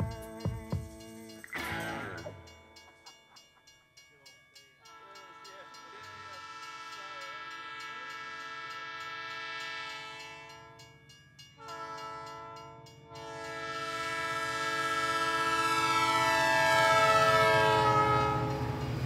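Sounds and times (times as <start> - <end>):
light rhythmic clatter: 0.0 - 13.0
train horn: 4.8 - 10.8, 11.6 - 19.0.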